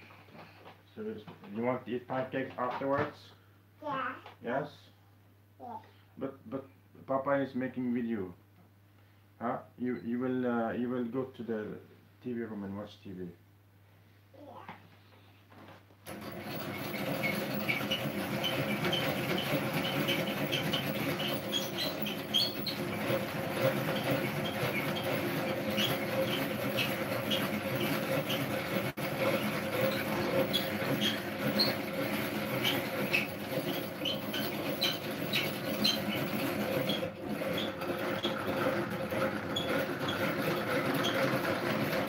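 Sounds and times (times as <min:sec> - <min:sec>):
egg beater gears rattling: 0:16.1 - 0:42.0
high gear squeaks: 0:16.1 - 0:42.0.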